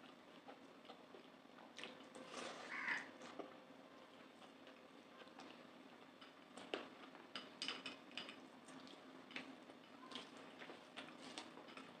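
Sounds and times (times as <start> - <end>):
chewing: 0.0 - 7.4, 8.2 - 12.0.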